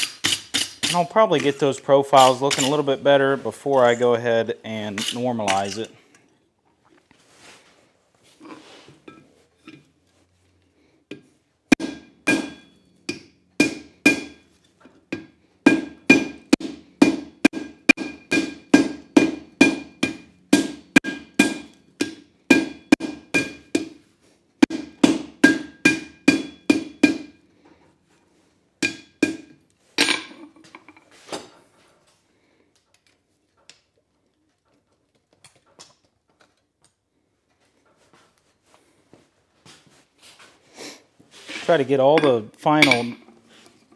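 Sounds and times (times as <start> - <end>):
hammer striking metal on anvil: 0.0 - 1.1, 11.7 - 14.5, 15.1 - 24.0, 24.6 - 27.4, 28.8 - 30.2, 42.2 - 43.2.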